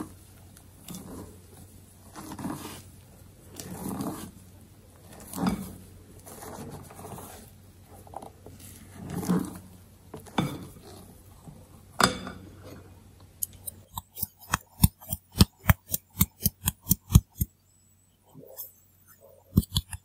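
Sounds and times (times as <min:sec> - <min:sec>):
spatula scraping batter in bowl: 0:02.0 - 0:02.9, 0:03.6 - 0:04.4, 0:13.4 - 0:17.5, 0:18.3 - 0:20.0.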